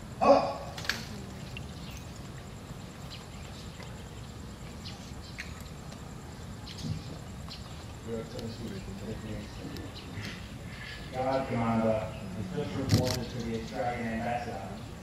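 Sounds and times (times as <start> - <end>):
faint high insect whine: 0.0 - 15.0
bird chirps: 2.8 - 5.6.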